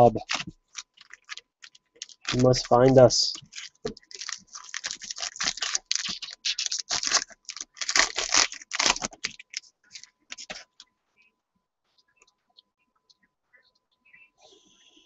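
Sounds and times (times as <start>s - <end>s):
foil wrapper crinkling and tearing: 0.0s - 10.8s.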